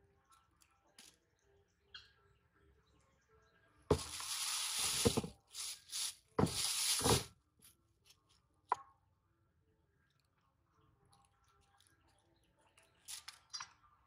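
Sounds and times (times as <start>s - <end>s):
plastic bag crinkling: 3.9s - 7.3s.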